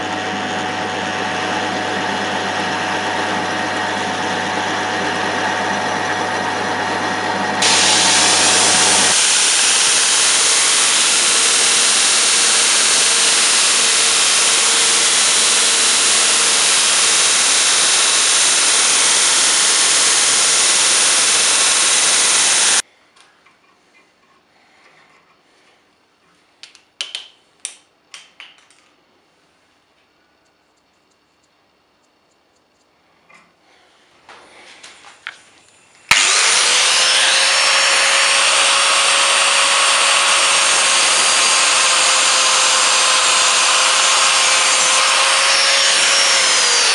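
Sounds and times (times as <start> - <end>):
belt grinder grinding steel: 0.0 - 22.8, 36.1 - 46.9
drill press boring into steel: 0.4 - 22.8, 36.1 - 46.9.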